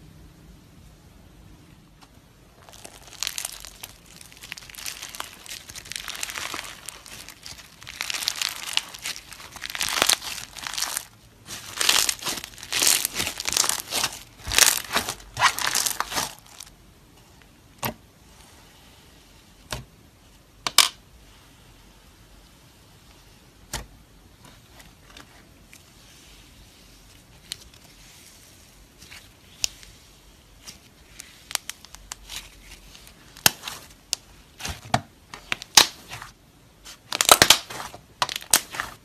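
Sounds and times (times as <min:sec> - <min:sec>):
crunchy slime crackling: 0:02.5 - 0:16.7, 0:27.2 - 0:39.0.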